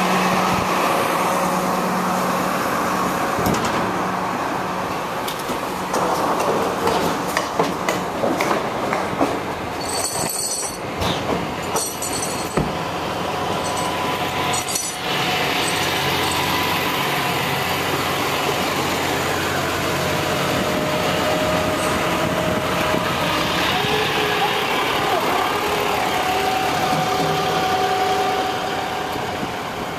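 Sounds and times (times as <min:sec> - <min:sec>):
metallic clanks and rattles: 0:09.8 - 0:12.8, 0:13.6 - 0:16.5
truck engine idling: 0:11.4 - 0:29.9.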